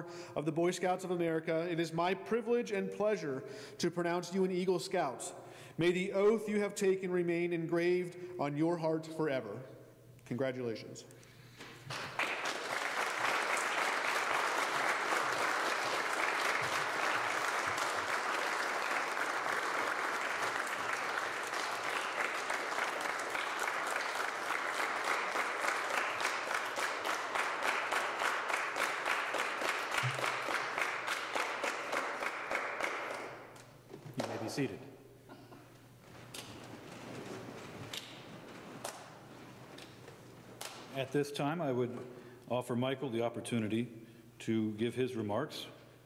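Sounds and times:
audience applauding: 11.8s - 33.6s.

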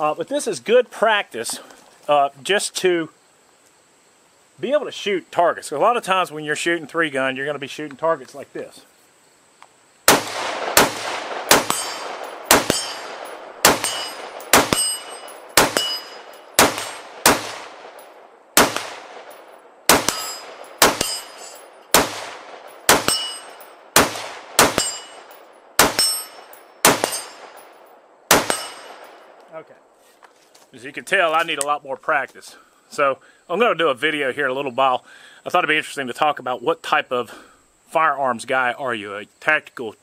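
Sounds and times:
rifle shots: 10.1s - 29.4s
metallic ringing of steel targets: 10.8s - 29.4s.

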